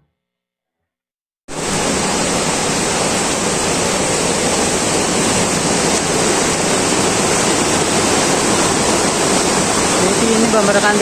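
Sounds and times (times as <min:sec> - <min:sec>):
fast-flowing stream rushing: 0:01.5 - 0:11.0.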